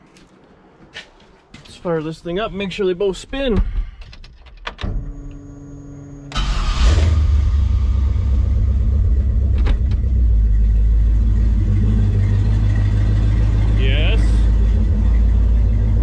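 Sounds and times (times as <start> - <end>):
engine starter whine: 4.8 - 13.0
engine revving and idling: 5.9 - 16.0.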